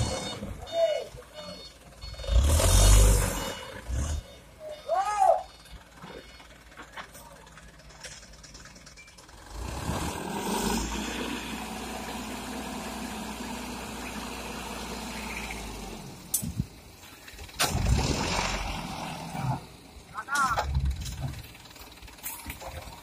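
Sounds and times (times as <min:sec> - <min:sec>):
diesel truck engine revving: 0:00.0 - 0:04.6, 0:09.2 - 0:20.1.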